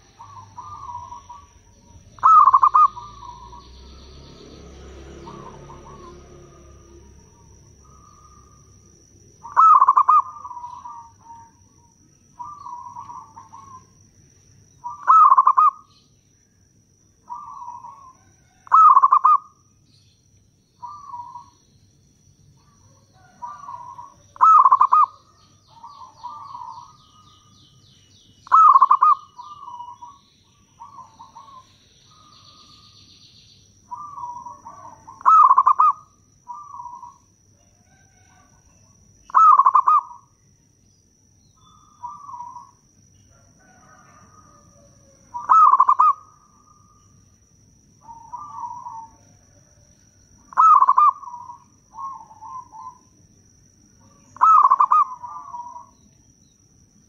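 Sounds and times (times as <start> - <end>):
dove cooing: 0.0 - 4.1, 5.0 - 14.0, 14.8 - 16.0, 17.2 - 19.6, 20.8 - 21.6, 22.6 - 27.6, 28.4 - 32.9, 33.9 - 40.4, 41.6 - 42.8, 43.4 - 47.0, 48.0 - 49.9, 50.5 - 53.1, 54.0 - 56.0.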